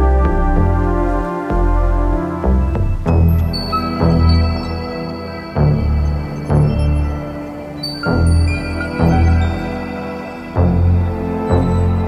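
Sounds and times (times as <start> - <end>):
deep bass notes: 0.0 - 4.6
sustained synthesizer chords: 0.0 - 12.0.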